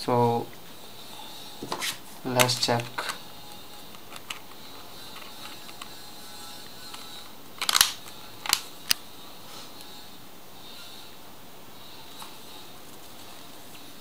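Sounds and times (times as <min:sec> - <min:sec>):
phone cover clicks: 0:06.9 - 0:09.0.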